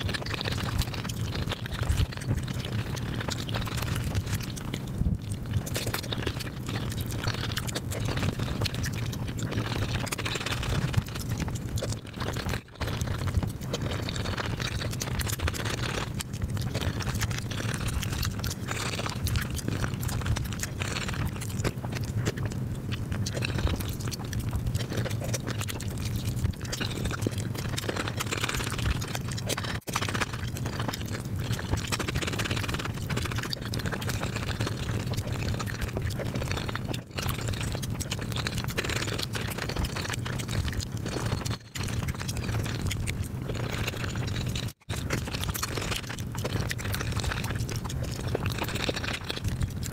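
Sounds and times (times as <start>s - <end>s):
chewing and mouth clicks: 0.0s - 49.9s.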